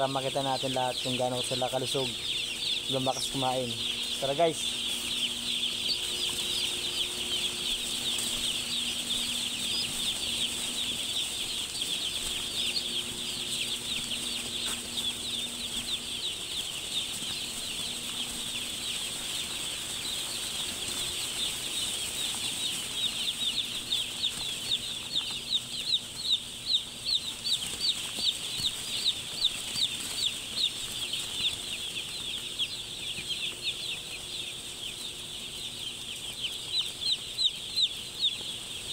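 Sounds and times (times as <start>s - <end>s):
chorus of chicks peeping: 0.0s - 38.9s
loud single chick peeps: 0.0s - 38.9s.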